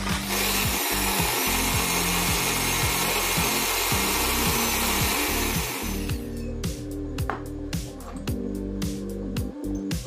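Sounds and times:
electric drill motor: 0:00.0 - 0:06.4.

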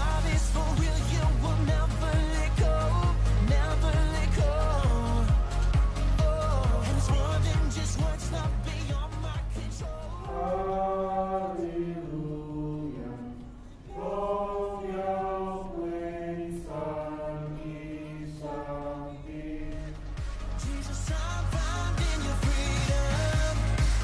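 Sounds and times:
choir singing: 0:09.9 - 0:20.5.

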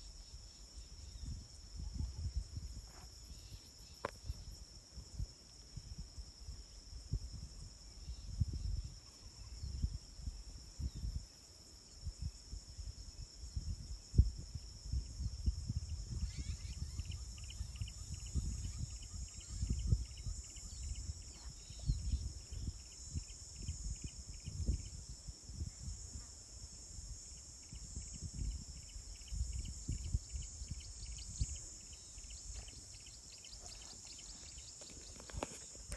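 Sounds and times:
insect chirping: 0:00.0 - 0:35.9
insects droning: 0:00.0 - 0:35.9
wind rumble on microphone: 0:00.0 - 0:35.9.

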